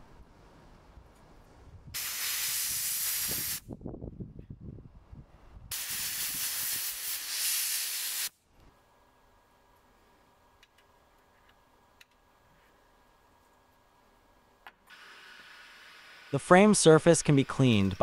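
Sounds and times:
soda blaster hissing: 0:02.0 - 0:03.6, 0:05.7 - 0:08.3, 0:14.9 - 0:17.8.

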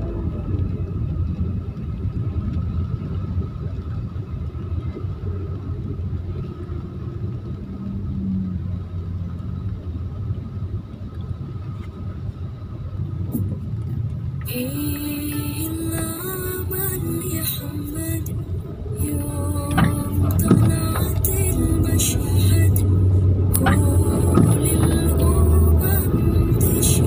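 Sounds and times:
car engine rumble: 0:00.0 - 0:27.0
road noise: 0:00.0 - 0:27.0.

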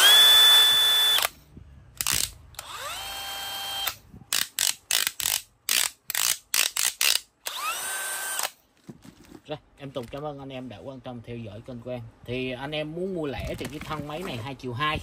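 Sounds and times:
power drill running: 0:00.0 - 0:01.3, 0:02.6 - 0:04.0, 0:07.4 - 0:08.5
drill chuck ratchet clicks: 0:03.8 - 0:08.5.

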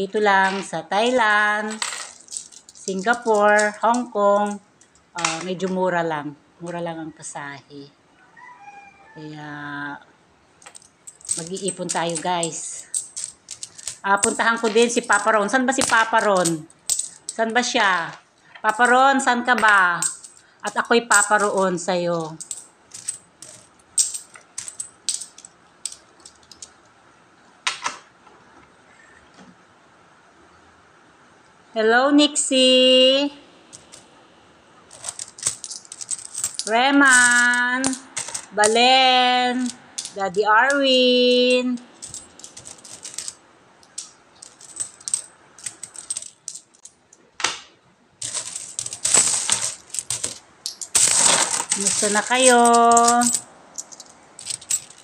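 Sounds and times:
metal coins clinking: 0:00.0 - 0:05.7, 0:10.6 - 0:26.8, 0:33.7 - 0:34.1, 0:34.9 - 0:47.2, 0:48.2 - 0:55.0.

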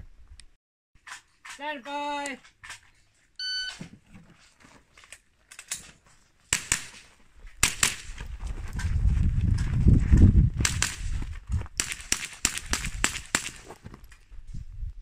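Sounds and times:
rifle shots: 0:06.5 - 0:08.2, 0:10.6 - 0:11.2, 0:11.8 - 0:13.6.

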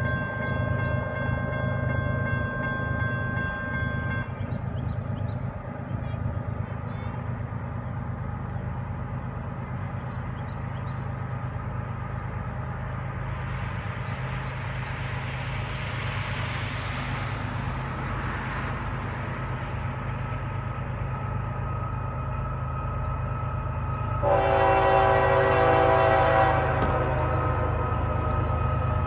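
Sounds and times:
insects chirping: 0:00.0 - 0:29.0
train rumbling: 0:00.0 - 0:29.0
distant locomotive horn: 0:24.2 - 0:29.0.

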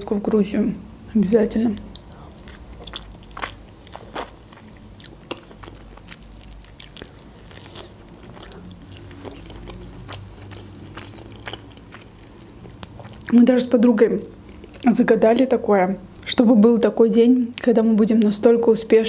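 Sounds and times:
person chewing food: 0:01.7 - 0:13.4, 0:14.4 - 0:14.9.

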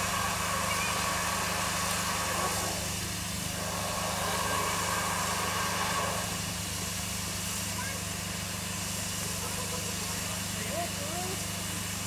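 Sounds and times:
low mechanical drone: 0:00.0 - 0:12.0.

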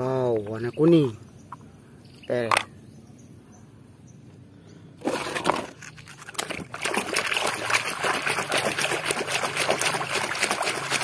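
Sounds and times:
water sloshing and splashing: 0:05.0 - 0:11.0.

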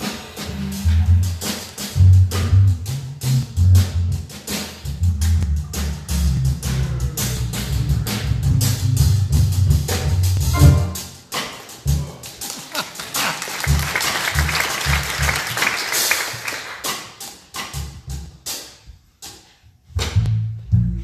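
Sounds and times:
deep electric bass notes: 0:00.4 - 0:04.3, 0:04.9 - 0:11.2, 0:13.7 - 0:15.4, 0:20.0 - 0:21.0
light drum strokes: 0:07.3 - 0:12.4.

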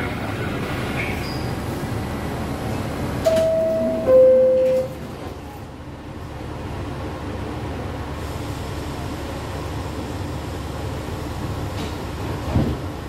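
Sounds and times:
train hum: 0:00.0 - 0:13.0
two-tone door chime: 0:03.2 - 0:05.0
sliding doors closing: 0:11.7 - 0:13.0.

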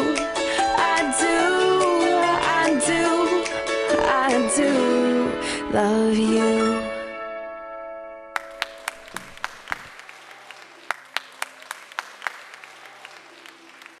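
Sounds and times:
music: 0:00.0 - 0:09.2
small crowd clapping: 0:08.4 - 0:14.0.

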